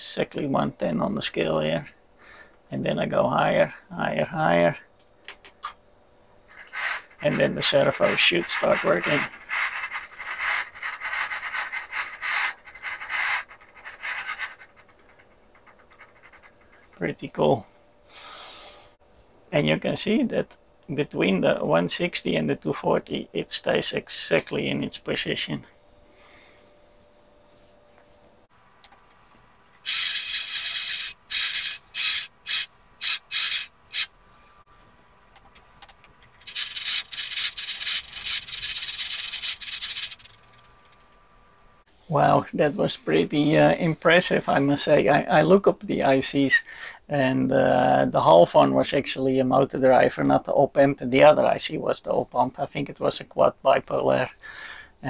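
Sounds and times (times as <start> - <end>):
carbon brush scraping windings: 6.6 - 17.2, 28.6 - 41.8
servo motor rough rubbing: 28.9 - 41.2.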